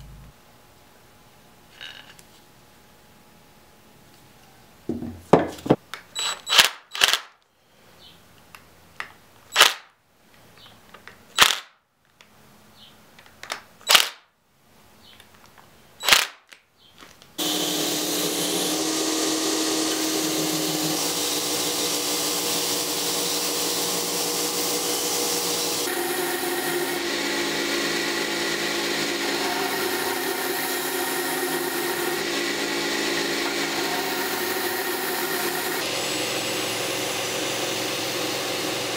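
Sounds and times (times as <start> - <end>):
belt grinder grinding: 17.4 - 38.9.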